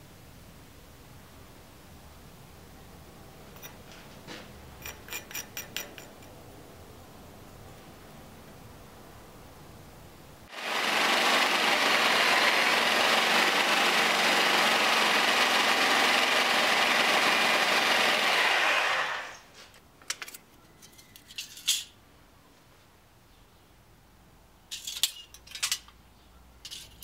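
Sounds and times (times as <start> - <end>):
sheet metal clinking: 4.8 - 6.4, 24.7 - 25.9, 26.6 - 27.0
handheld power tool running: 10.5 - 19.4.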